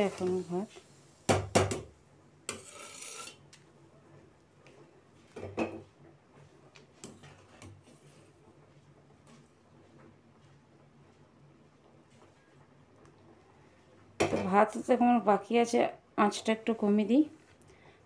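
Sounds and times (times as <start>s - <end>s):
knock on pot: 1.3s - 1.9s
metal spatula scraping pot: 2.4s - 3.5s.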